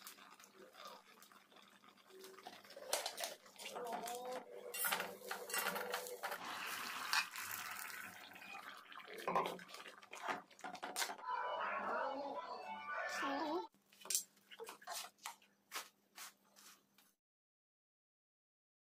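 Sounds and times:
liquid splashing: 0.0s - 11.2s.

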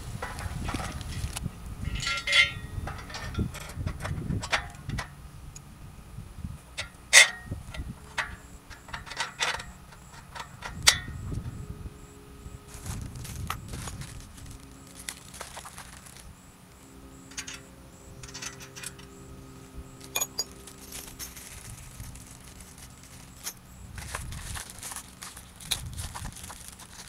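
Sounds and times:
small metal parts clinking: 0.2s - 5.1s, 6.8s - 11.6s, 12.7s - 16.4s, 17.0s - 27.0s
rustling: 12.6s - 27.0s.

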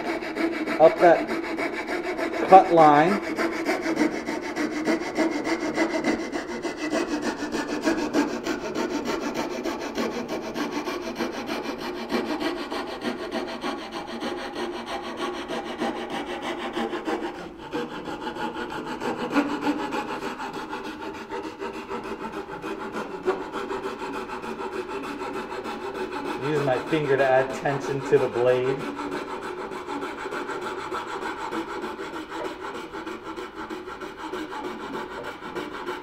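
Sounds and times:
coping saw cutting wood: 0.0s - 36.0s.

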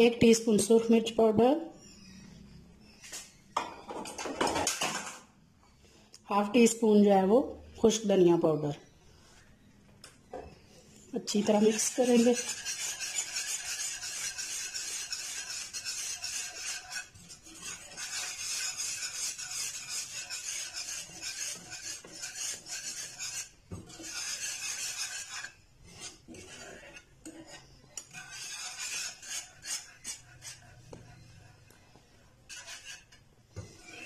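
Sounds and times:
whisk scraping a pan: 11.1s - 34.0s.

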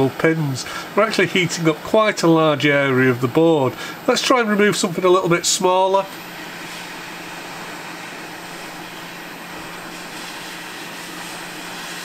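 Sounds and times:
low steady hum: 0.0s - 12.0s
hot air rushing from nozzle: 6.0s - 12.0s.

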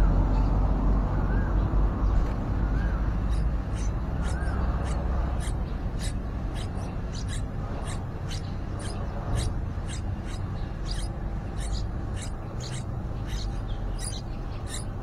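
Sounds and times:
nestlings cheeping: 3.2s - 15.0s.

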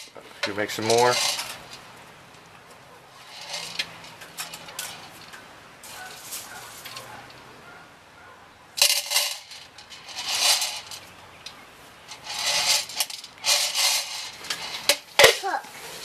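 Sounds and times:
plastic toy pots clattering: 12.1s - 16.0s.

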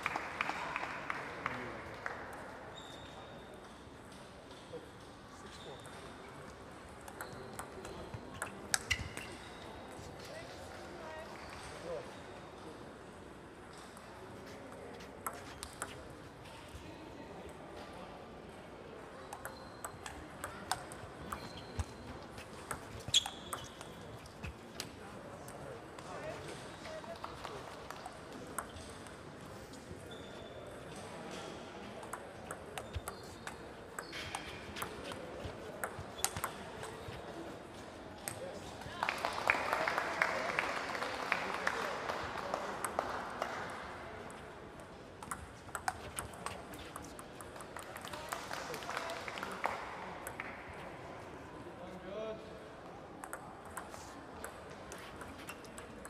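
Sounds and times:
sneaker squeak: 2.7s - 3.5s, 5.4s - 6.4s, 7.2s - 10.4s, 19.4s - 20.2s, 21.2s - 24.6s, 30.0s - 30.8s, 32.4s - 37.5s, 45.8s - 47.2s, 55.0s - 55.9s
table tennis balls clicking: 6.9s - 9.5s, 15.1s - 16.1s, 19.2s - 25.0s, 32.0s - 37.2s, 45.2s - 48.3s, 53.2s - 56.0s
table tennis ball clicks: 32.0s - 37.0s, 45.2s - 48.2s.

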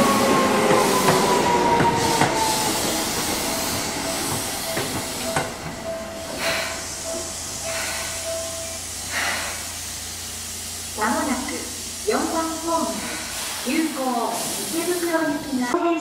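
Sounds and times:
air brakes hissing: 0.0s - 15.7s
train motor whine: 0.0s - 15.7s.

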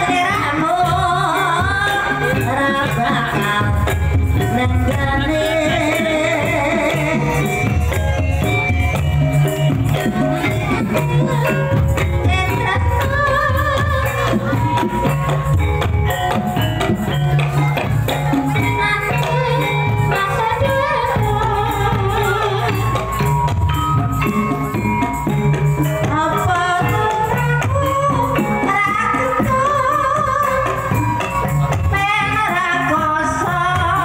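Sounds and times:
person singing: 0.0s - 17.6s, 18.3s - 23.3s
gamelan ensemble playing: 0.0s - 34.0s.

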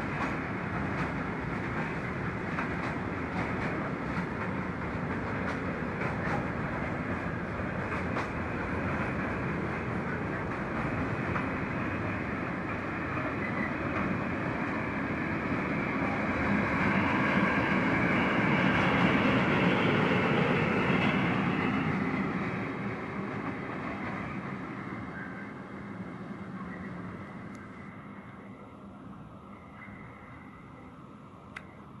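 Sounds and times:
freight train wheels rolling: 0.0s - 25.4s.

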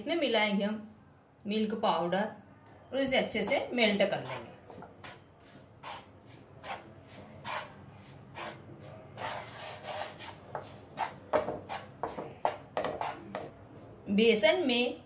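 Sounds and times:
wooden spatula scraping frying pan: 4.2s - 13.5s.

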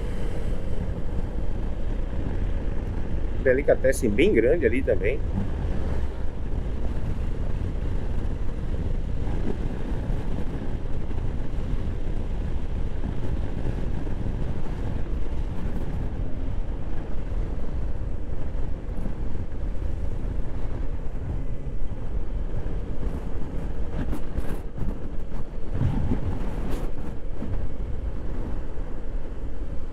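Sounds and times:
scooter engine: 0.0s - 3.4s
wind buffeting microphone: 0.0s - 29.9s.

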